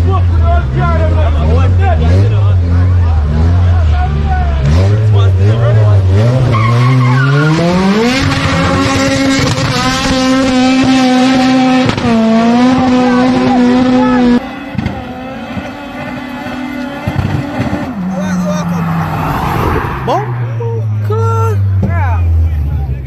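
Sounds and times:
car engine revving hard: 0.0s - 22.7s
tyre squeal: 6.4s - 8.8s.

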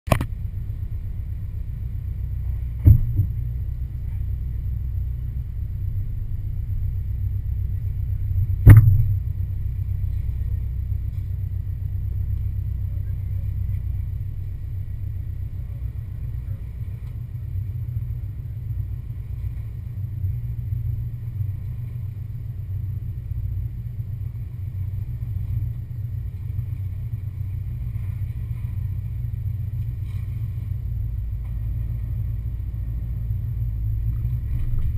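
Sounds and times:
engine low rumble: 0.0s - 34.9s
sharp knocks: 2.8s - 3.4s, 8.6s - 9.2s.

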